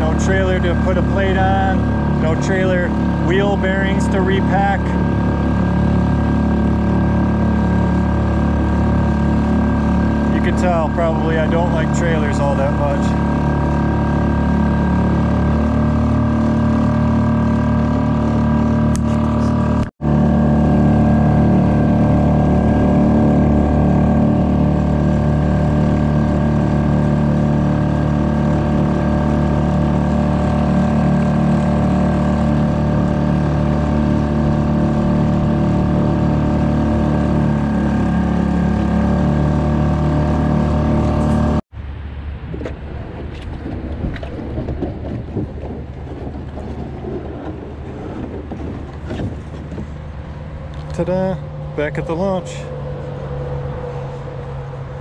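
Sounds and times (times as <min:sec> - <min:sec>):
outboard motor running: 0:00.0 - 0:41.7, 0:42.5 - 0:55.0
road traffic rumble: 0:00.0 - 0:55.0.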